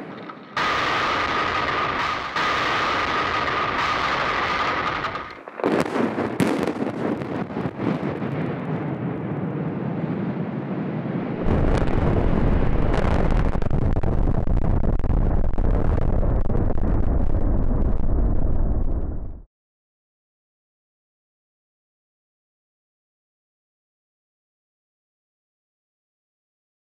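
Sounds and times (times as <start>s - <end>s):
demolition charges cracking: 0.0s - 8.6s, 11.4s - 19.3s
rumble of towers collapsing: 0.0s - 19.5s
wind buffeting microphone: 5.1s - 19.4s.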